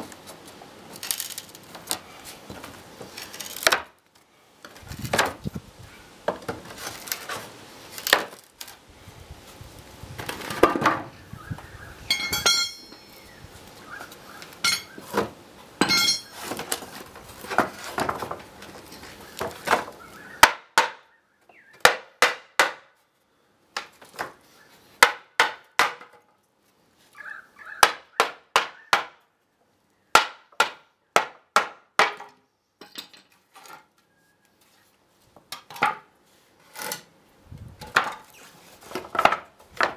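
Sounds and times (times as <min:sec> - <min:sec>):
wood and nails creaking: 0:00.9 - 0:04.0, 0:06.3 - 0:08.8, 0:16.0 - 0:20.0, 0:36.6 - 0:37.1.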